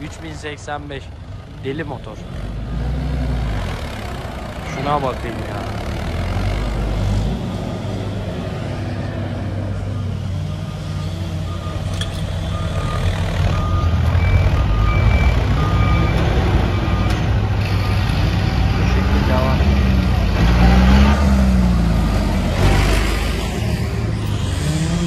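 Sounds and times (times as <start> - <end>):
diesel tractor engines running hard: 0.0 - 25.0
reversing beeper: 9.6 - 19.9.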